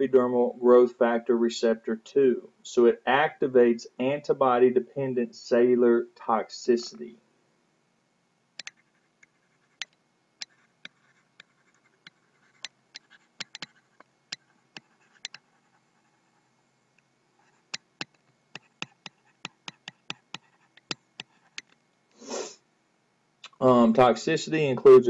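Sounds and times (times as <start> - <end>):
stylus tapping on pen tablet: 8.6 - 15.5, 17.4 - 21.8.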